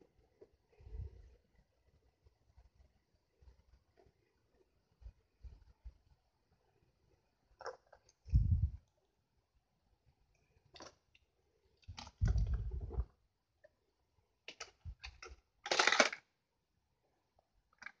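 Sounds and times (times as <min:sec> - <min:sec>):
plastic toy clicks and knocks: 0:14.5 - 0:16.3.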